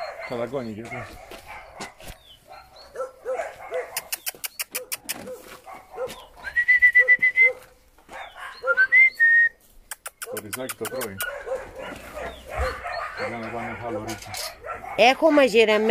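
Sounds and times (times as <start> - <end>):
puppies whimpering: 0.0 - 1.8, 6.1 - 9.0, 10.8 - 15.9
sharp clicks: 4.0 - 5.3, 9.9 - 11.3.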